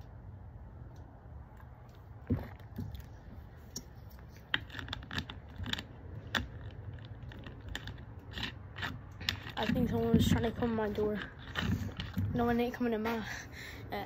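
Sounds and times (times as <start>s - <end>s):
sharp clicks and rattles: 3.7s - 12.8s.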